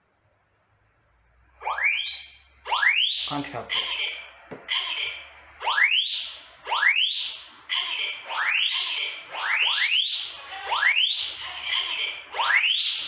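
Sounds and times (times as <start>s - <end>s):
smoke alarm rising sweep tone: 1.6s - 13.0s.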